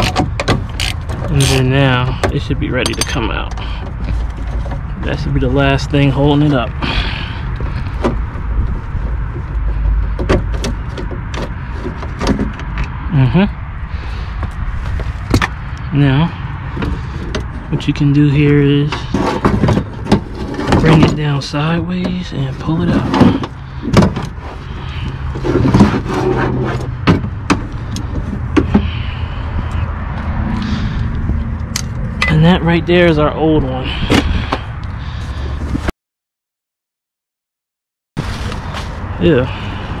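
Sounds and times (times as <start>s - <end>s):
metal clanking and scraping: 0.0s - 12.9s, 16.7s - 29.2s.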